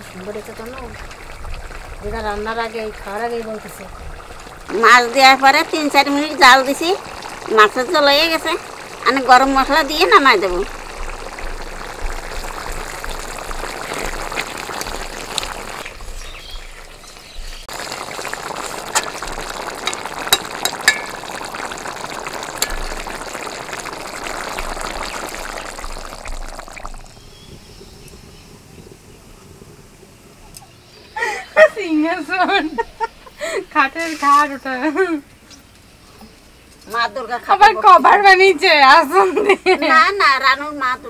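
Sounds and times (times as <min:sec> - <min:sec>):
curry bubbling in a wok: 0:00.0 - 0:31.2
ladle clicking against pan: 0:19.8 - 0:21.2.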